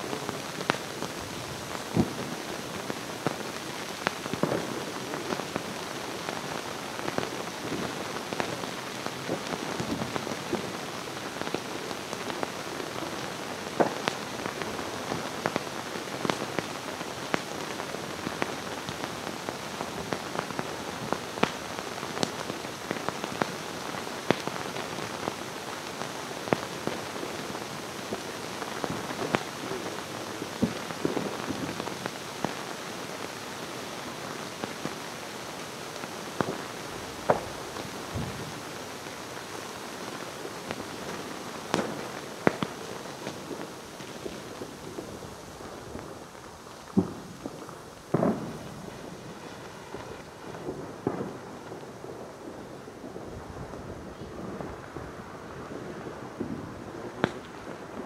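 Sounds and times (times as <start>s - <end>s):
sparks hissing and crackling: 0.0s - 58.0s.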